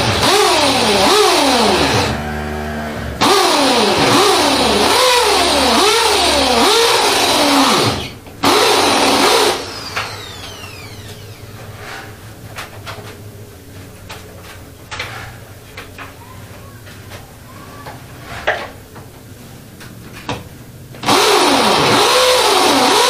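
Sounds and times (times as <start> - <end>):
electric drill boring into wall: 0.0 - 11.6, 21.0 - 23.0.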